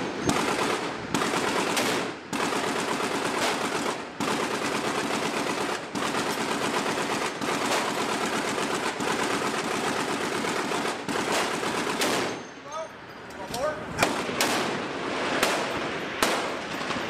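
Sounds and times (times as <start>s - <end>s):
rapid machine gun fire: 0.0s - 12.3s.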